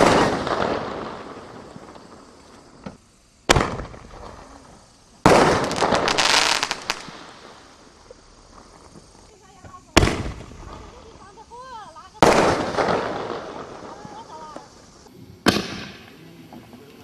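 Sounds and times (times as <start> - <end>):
crackling pops: 0.0 - 11.1
firework shell bursting: 0.0 - 11.4, 12.1 - 16.2
firework shell launch report: 0.0 - 17.0.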